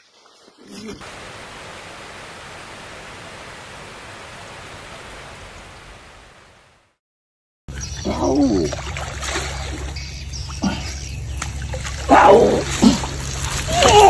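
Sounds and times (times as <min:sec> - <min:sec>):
steady rushing hiss: 0:01.0 - 0:06.4.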